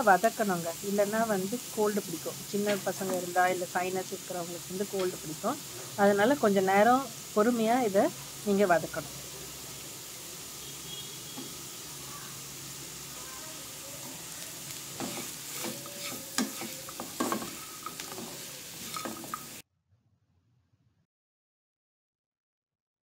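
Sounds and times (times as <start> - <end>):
vegetables sizzling in oil: 0.0 - 19.6
spatula scraping frying pan: 10.4 - 19.6.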